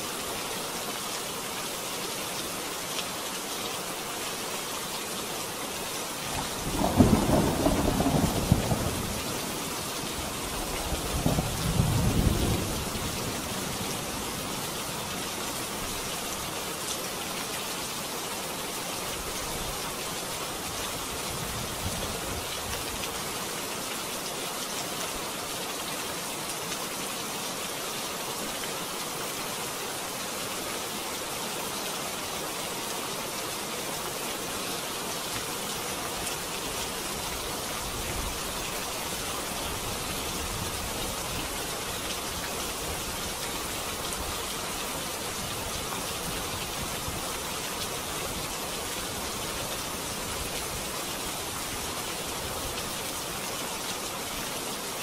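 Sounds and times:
steady rain falling: 0:00.0 - 0:55.0
thunder rumbling: 0:06.4 - 0:09.4.

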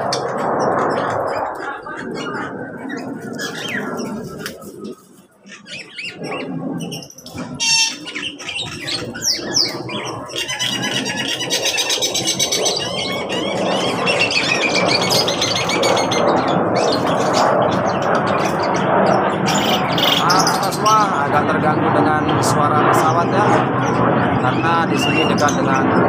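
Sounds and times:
fast chittering bird trill: 0:00.0 - 0:22.2, 0:22.9 - 0:25.8
aircraft rumble: 0:00.0 - 0:26.0
birds chirping and squawking: 0:00.0 - 0:26.0
bird screech: 0:05.5 - 0:20.9.

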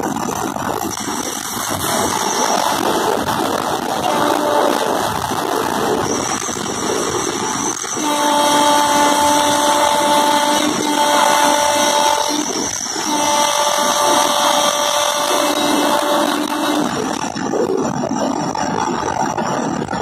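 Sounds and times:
rush of train cab: 0:00.0 - 0:20.0
locomotive air horn blasts: 0:03.9 - 0:05.7, 0:07.8 - 0:17.4.

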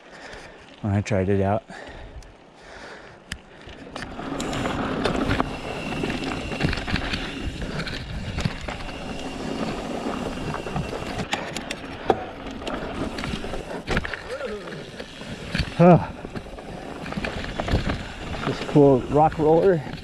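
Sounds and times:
bike tyres crunching on gravel: 0:03.6 - 0:20.0
bike chain and frame rattling: 0:03.7 - 0:20.0.

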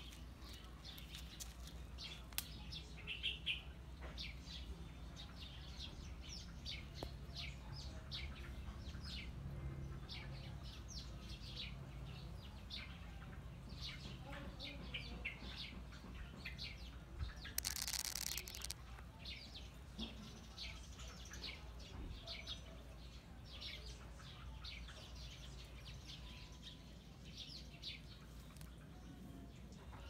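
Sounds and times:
small birds chirping: 0:00.0 - 0:30.0.

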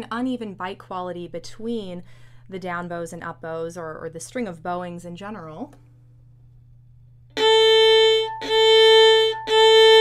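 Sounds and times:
violin hammered bow strokes: 0:07.4 - 0:10.0.

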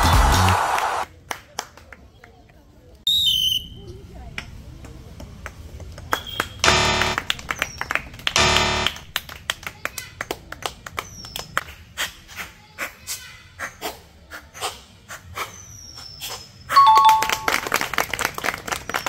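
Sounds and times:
wrong answer buzzer: 0:06.6 - 0:07.4, 0:08.4 - 0:09.1
ping pong balls bouncing: 0:16.8 - 0:17.7.

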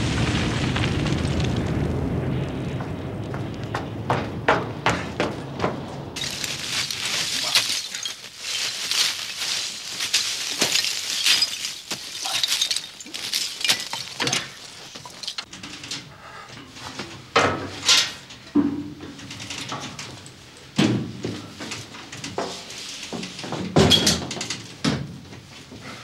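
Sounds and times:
coal pouring and clattering: 0:00.0 - 0:02.7, 0:06.2 - 0:15.8, 0:16.7 - 0:24.8
coal knocks and thuds: 0:03.7 - 0:15.5.

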